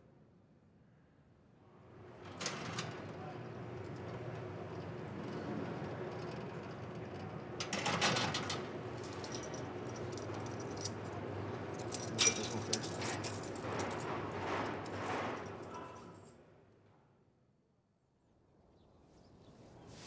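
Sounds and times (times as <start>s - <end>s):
metal jangling and clinking: 9.0s - 16.3s.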